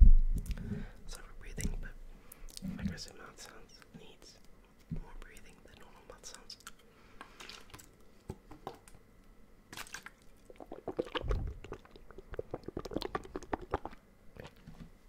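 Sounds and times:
wet mouth clicks and smacks: 10.4 - 14.6
person swallowing water: 10.4 - 14.7.

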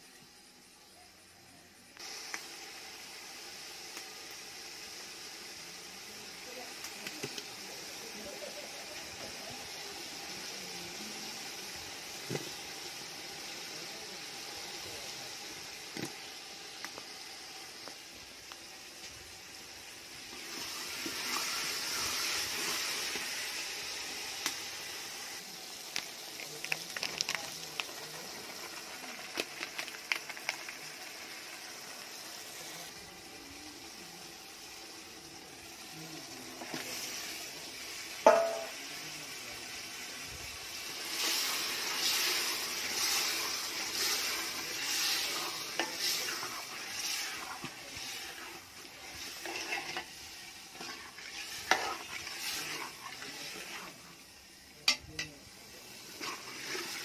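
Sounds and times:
curry sizzling in a metal pot: 0.0 - 57.0
metal spoon scraping a pot: 49.3 - 50.1, 50.7 - 53.8.

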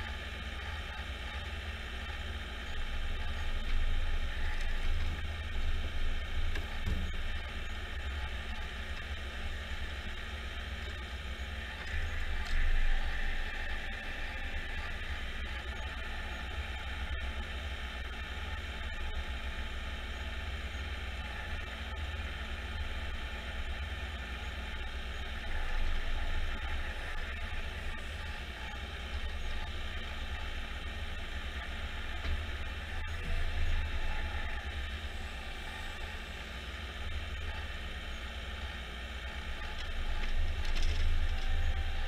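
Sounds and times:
engine running: 0.0 - 42.0.

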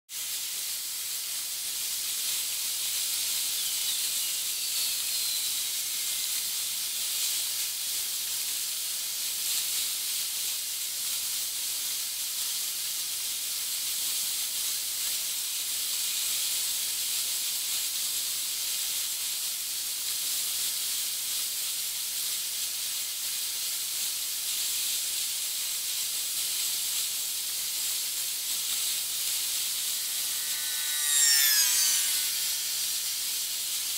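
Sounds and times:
sped-up surf hiss: 0.2 - 7.6, 27.0 - 33.9.

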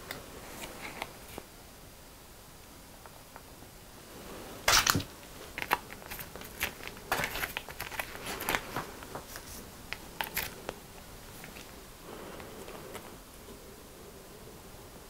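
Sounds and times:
plastic sachet ripping open: 4.7 - 9.5
plastic sachets crinkling: 4.7 - 11.8.

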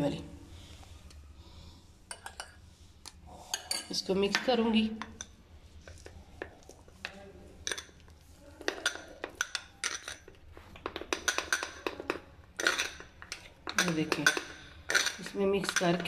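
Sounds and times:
metal spoon clinking on glass bowl: 7.0 - 10.4, 11.1 - 16.0.

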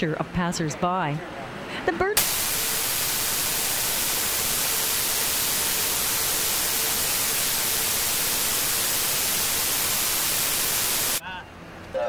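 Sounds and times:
loud static hiss: 2.2 - 11.2.

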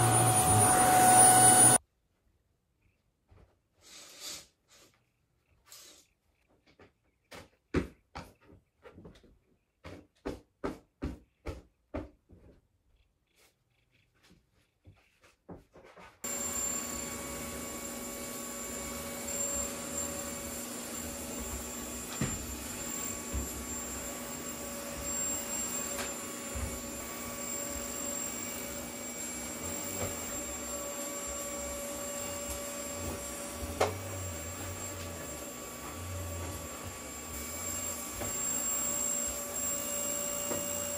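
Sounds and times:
vacuum cleaner running: 0.0 - 1.8, 16.2 - 40.9.

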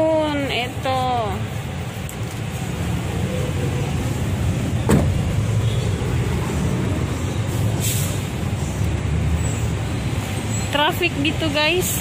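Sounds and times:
road traffic rumble: 0.0 - 12.0
sharp thump: 4.8 - 5.2
short hiss: 7.8 - 8.2.

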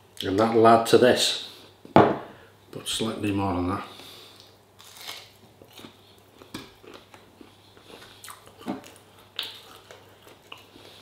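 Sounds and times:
person chewing crispy chicken: 4.8 - 11.0.

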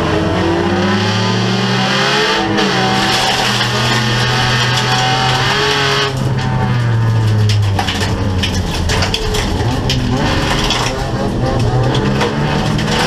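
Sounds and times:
car engine running hard: 0.0 - 13.0
gravel clattering against car body: 2.6 - 13.0.

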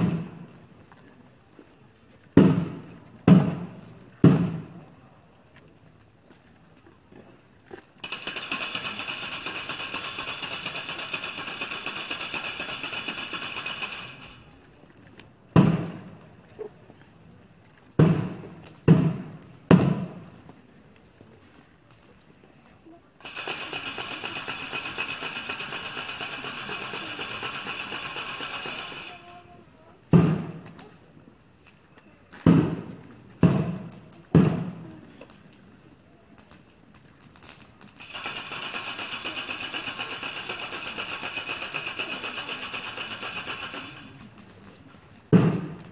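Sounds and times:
loud thump: 2.4 - 4.8, 45.3 - 45.8
heavy thuds: 2.4 - 4.9
rattling clatter: 8.0 - 14.5
wooden ratchet rattle clattering: 8.0 - 14.5, 23.2 - 29.3, 37.4 - 44.8.

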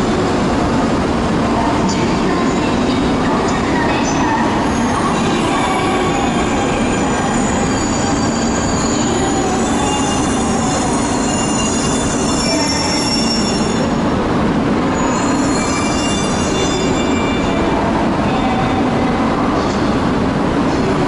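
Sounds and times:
train rumble and hiss: 0.0 - 21.0
high metallic squealing: 4.8 - 13.9, 15.0 - 17.6.

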